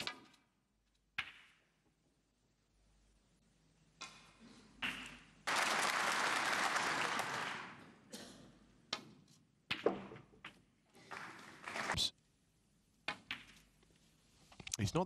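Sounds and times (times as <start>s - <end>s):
audience applauding: 5.4s - 7.8s, 11.0s - 12.1s.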